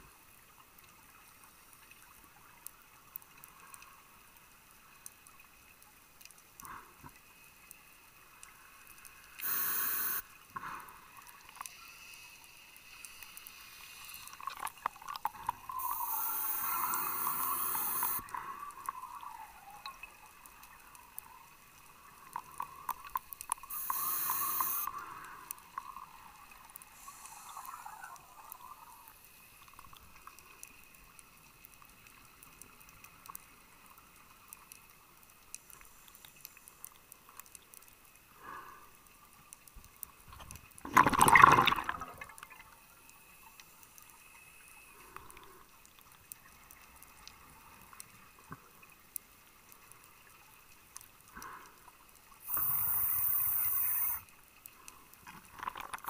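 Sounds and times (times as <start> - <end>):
faint water noise: 0.0 - 56.0
breath hissing through regulator: 9.4 - 10.9, 15.7 - 19.0, 23.6 - 25.6, 26.8 - 28.8, 52.4 - 54.3
exhaled air bubbling: 14.2 - 20.4, 40.4 - 42.6, 52.4 - 54.2.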